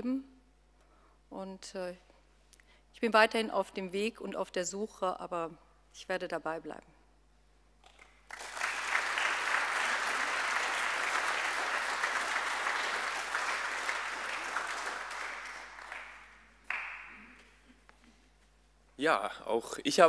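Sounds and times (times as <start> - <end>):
congregation applauding: 7.8 - 17.5.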